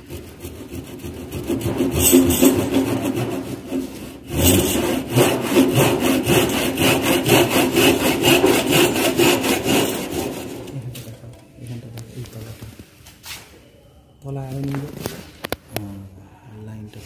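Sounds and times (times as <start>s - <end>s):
saw cutting wood: 0.0s - 10.8s.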